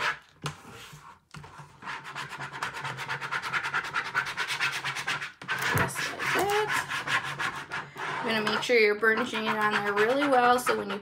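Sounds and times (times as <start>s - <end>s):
squeegee scraping vinyl: 0.0s - 11.0s.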